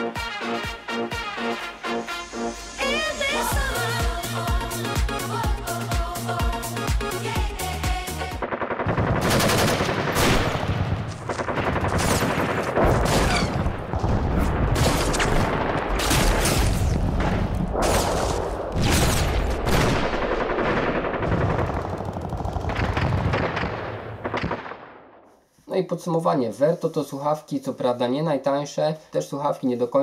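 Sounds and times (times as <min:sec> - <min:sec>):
pop music: 0:00.0 - 0:08.4
rapid game gunfire: 0:07.9 - 0:24.9.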